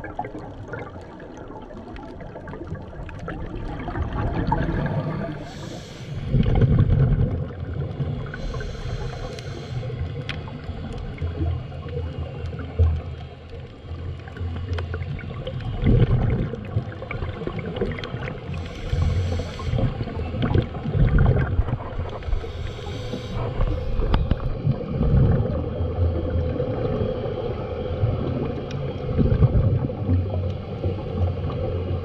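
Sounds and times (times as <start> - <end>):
moving water: 0.0 - 32.0
wind rumble on microphone: 6.3 - 8.3, 18.9 - 22.5, 23.4 - 32.0.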